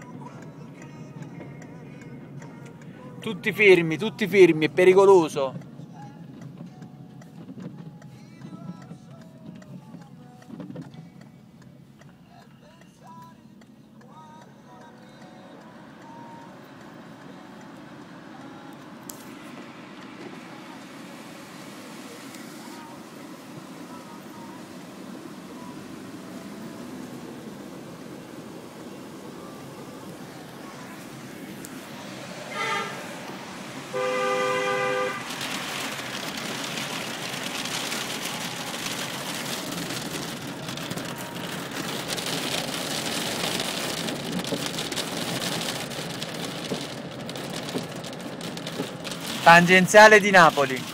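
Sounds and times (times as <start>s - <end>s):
two-tone car horn: 32.3s - 35.5s
hail and rain drumming on car roof: 33.9s - 50.9s.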